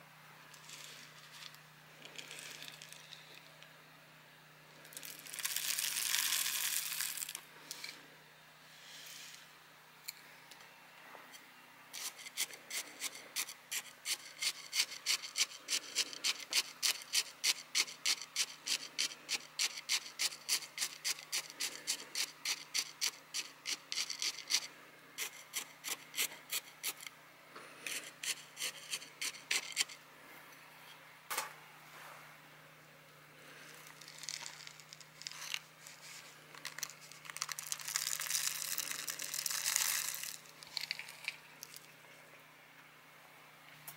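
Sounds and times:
gritty soil pouring: 0:00.5 - 0:03.4, 0:04.9 - 0:07.4, 0:33.6 - 0:41.9
stick scraping in gritty soil: 0:11.9 - 0:27.1, 0:27.9 - 0:30.0.

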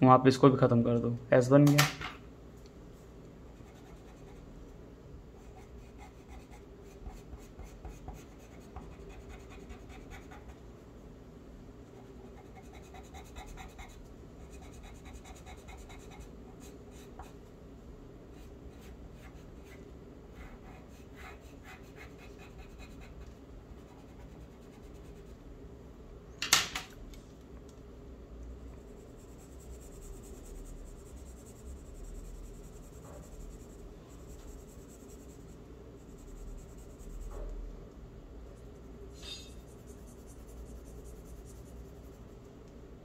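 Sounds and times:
pencil scratching on paper: 0:03.6 - 0:04.5, 0:05.4 - 0:10.6, 0:11.9 - 0:17.4, 0:18.3 - 0:25.4, 0:28.9 - 0:37.5, 0:38.8 - 0:42.3.

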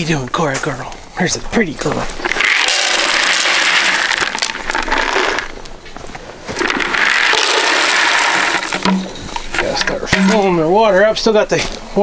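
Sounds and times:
dry dog food pouring into plastic bin: 0:02.4 - 0:05.5, 0:06.6 - 0:08.9.

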